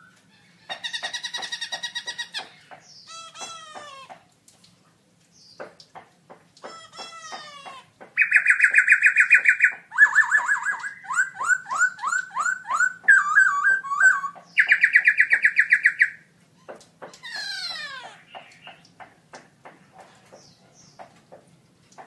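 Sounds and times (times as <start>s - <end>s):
bird singing whistled trills: 8.2s - 16.2s.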